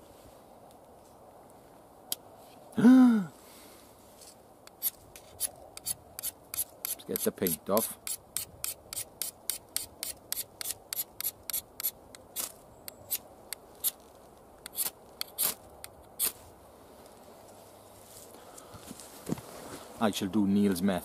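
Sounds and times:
steel scraping ferro rod: 0:04.7 - 0:13.2, 0:14.6 - 0:15.6.

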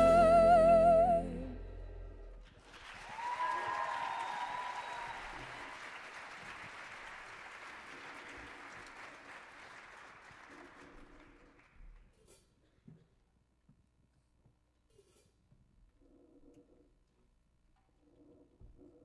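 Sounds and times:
high-pitched cheer: 0:00.0 - 0:01.8, 0:02.8 - 0:05.8
audience applauding: 0:02.4 - 0:11.8.

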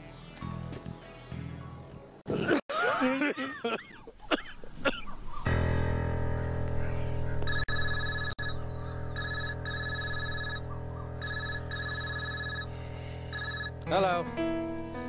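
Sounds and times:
sustained background music chord: 0:05.6 - 0:15.0
phone electronic ringtone: 0:07.5 - 0:08.6, 0:09.2 - 0:13.8.

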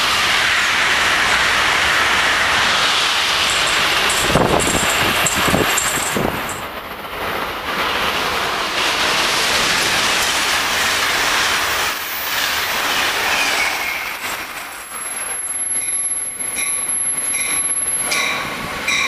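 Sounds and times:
wheels rushing on rail: 0:00.0 - 0:19.0
wheels clicking over rail joints: 0:03.2 - 0:19.0
high wheel squeal: 0:13.2 - 0:14.5.

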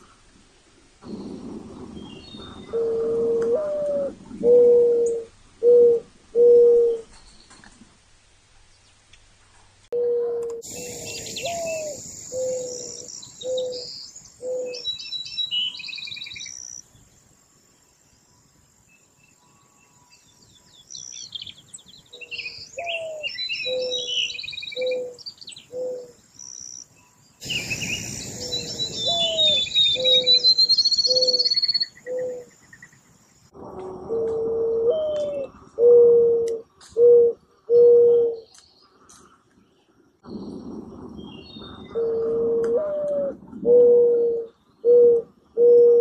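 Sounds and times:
mourning dove cooing: 0:01.0 - 0:07.2, 0:10.0 - 0:15.0, 0:22.2 - 0:26.2, 0:27.4 - 0:32.6, 0:33.6 - 0:38.5, 0:40.2 - 0:46.0
songbirds chirping and trilling: 0:01.0 - 0:46.0.

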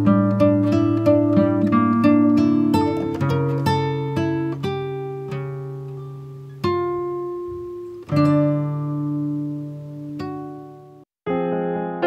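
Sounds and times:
acoustic guitar chords strummed: 0:00.0 - 0:11.0.

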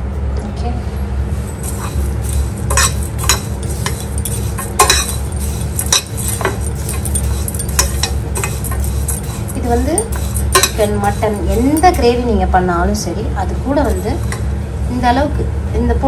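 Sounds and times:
steady low hum: 0:00.0 - 0:16.0
spoon scraping in steel pan: 0:01.5 - 0:12.3, 0:13.7 - 0:14.5
spoon clinking against metal: 0:01.6 - 0:12.3, 0:13.8 - 0:14.5.

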